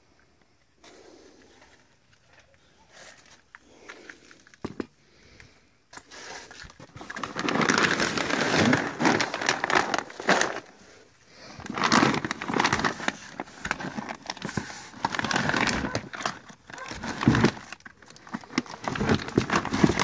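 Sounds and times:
plastic bags crinkling: 6.4 - 20.0.

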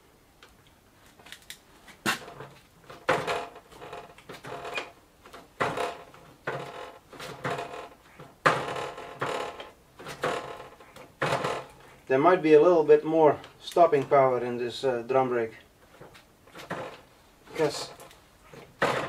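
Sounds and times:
bicycle brake creaking and squealing: 3.8 - 5.0.

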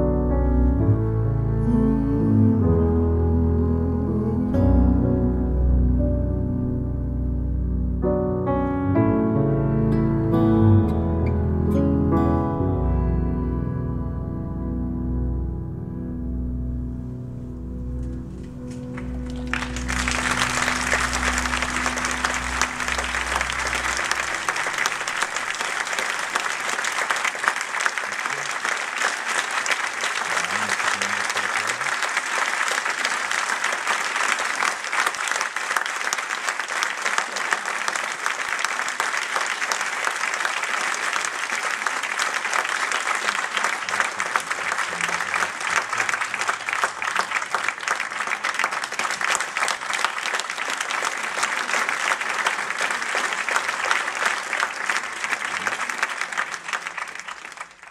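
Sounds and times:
music: 0.0 - 25.7
audience applauding: 18.0 - 57.9.

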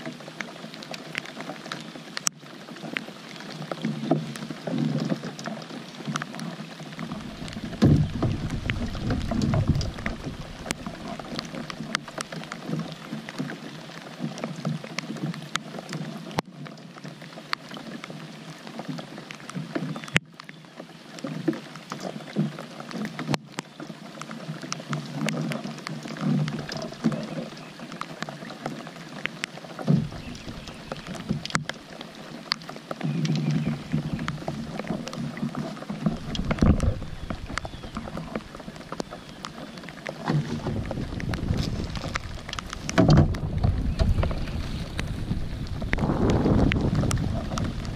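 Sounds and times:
rain falling on water: 0.0 - 47.9
raindrops ticking near microphone: 0.0 - 47.9
low rumble: 7.2 - 11.6, 40.4 - 47.9.

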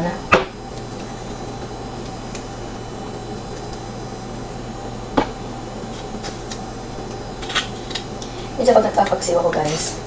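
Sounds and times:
kitchen appliance humming: 0.0 - 10.0.

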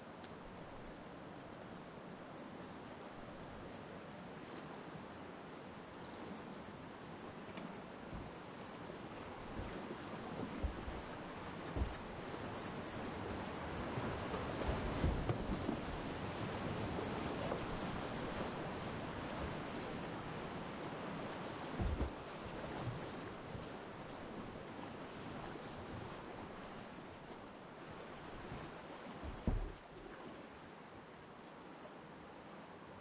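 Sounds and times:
dull low thumps: 10.6 - 12.2, 21.8 - 22.2, 29.2 - 29.8.

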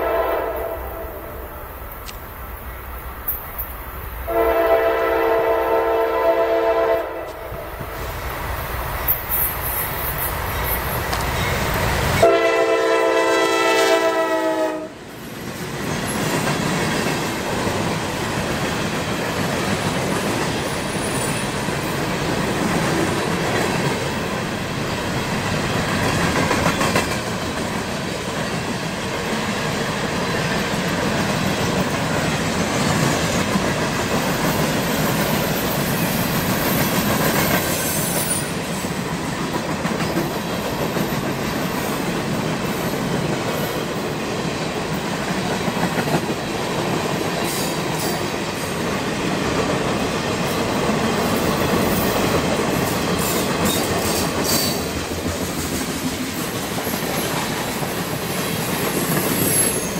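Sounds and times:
train air horn blasts: 0.0 - 1.6, 4.3 - 7.7, 12.2 - 15.0
train wheels clacking: 15.3 - 59.9.

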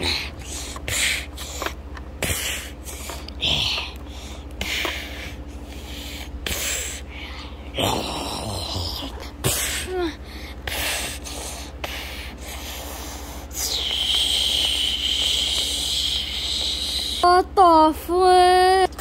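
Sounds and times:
breathy snorting mouth noises: 0.0 - 7.0.

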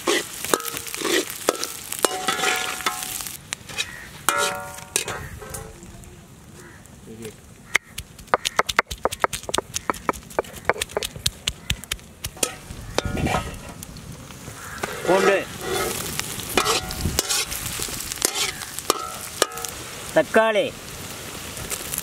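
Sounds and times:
food sizzling in hot oil: 0.0 - 5.8, 7.7 - 22.0
stone roller knocking on stone: 8.3 - 11.1
ladle stirring: 14.8 - 17.6.

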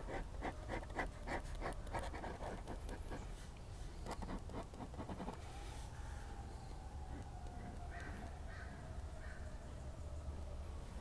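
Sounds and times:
ballpoint pen scratching on paper: 0.0 - 3.3, 4.0 - 5.4.

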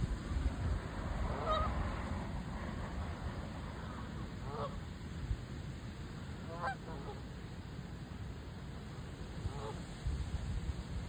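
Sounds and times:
low wind rumble on microphone: 0.0 - 11.0
geese honking: 1.4 - 1.7.

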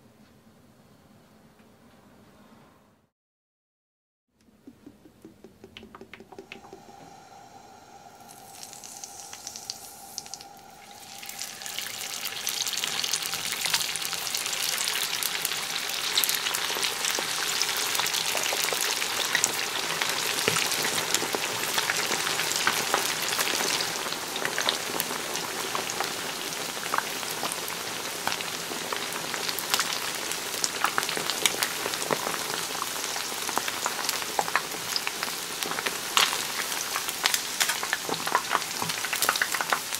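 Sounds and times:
chicken deep-frying sizzle: 5.7 - 39.9
oil pouring into frying pan: 7.6 - 19.8.

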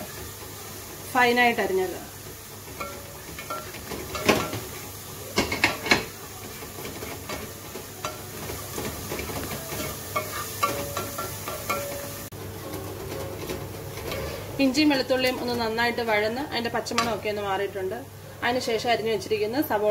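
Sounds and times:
ginger and garlic sizzling in oil: 0.0 - 19.9
spatula scraping pan: 2.5 - 15.7.

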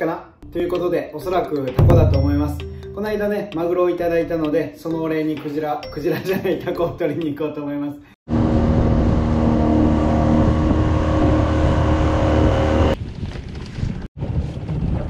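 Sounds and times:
boat engine rumbling: 8.3 - 13.0
wind buffeting microphone: 8.3 - 15.0.

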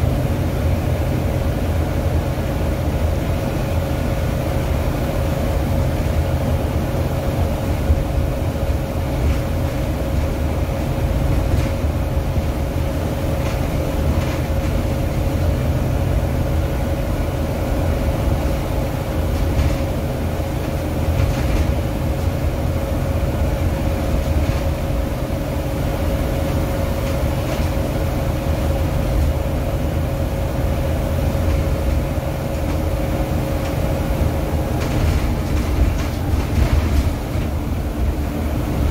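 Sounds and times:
bus engine and tyres rumbling: 0.0 - 38.9
faint rattles: 33.6 - 38.1.

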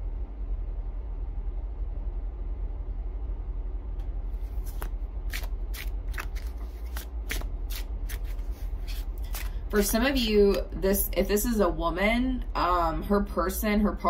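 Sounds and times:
steady low hum: 0.0 - 14.0
cards being shuffled: 4.4 - 10.8.

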